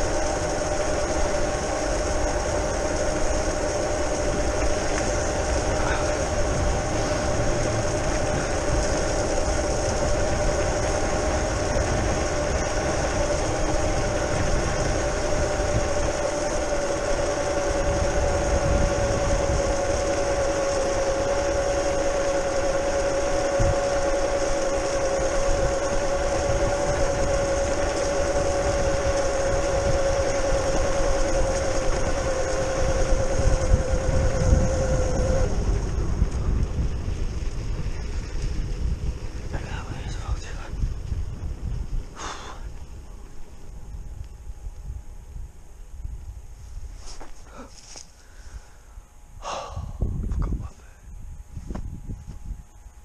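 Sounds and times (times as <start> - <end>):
electric motor whining: 0.0 - 40.8
low rumble of riding: 0.0 - 53.0.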